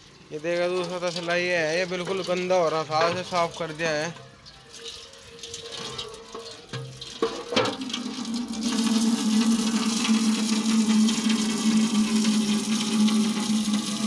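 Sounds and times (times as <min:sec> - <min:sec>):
tap water splashing into metal pan: 0:00.7 - 0:14.0
pan knocking on concrete floor: 0:02.0 - 0:04.3, 0:05.8 - 0:08.1.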